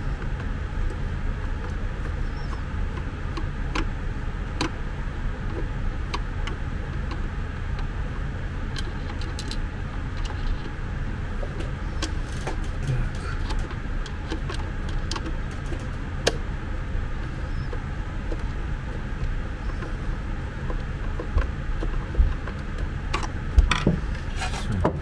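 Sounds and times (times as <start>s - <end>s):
steady low rumble: 0.0s - 25.0s
small clicks and taps: 13.4s - 16.4s.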